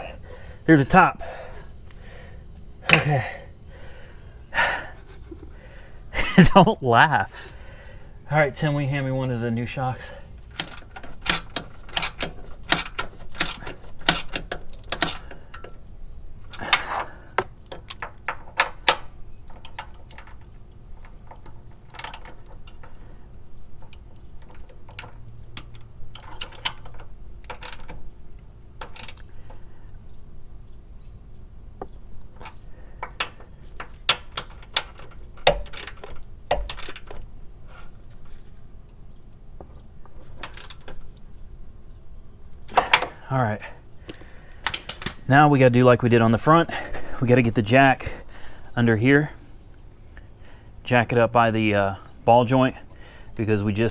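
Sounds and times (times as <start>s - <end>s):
hand ratchet clicking: 10.5s - 15.8s, 21.0s - 23.0s
metal tools clinking: 10.5s - 15.8s, 16.5s - 23.0s, 23.8s - 28.1s, 32.3s - 37.3s, 40.1s - 41.1s.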